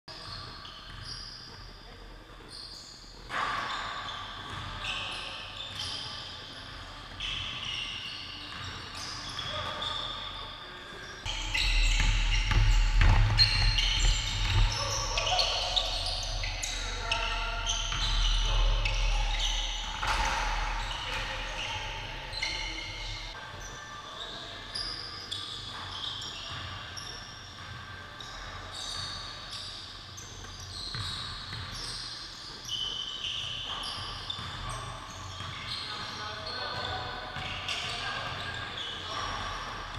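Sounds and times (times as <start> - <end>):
sneakers squeaking: 0.1 - 39.9
basketball bouncing: 11.3 - 23.3.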